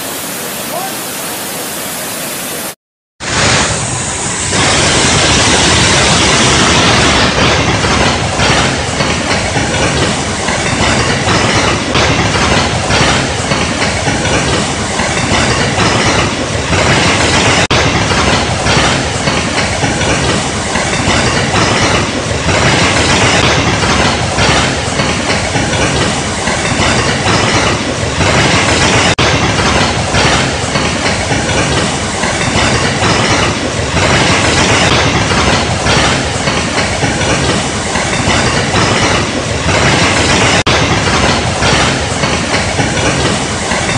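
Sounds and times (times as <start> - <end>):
waterfall rushing: 0.0 - 12.9.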